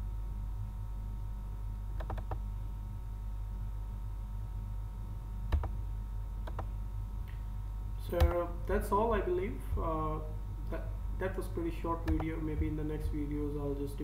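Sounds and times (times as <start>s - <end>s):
low electrical hum: 0.0s - 14.0s
computer mouse clicks: 2.0s - 2.4s, 5.5s - 5.8s, 6.4s - 6.7s, 8.2s - 8.4s, 12.0s - 12.3s.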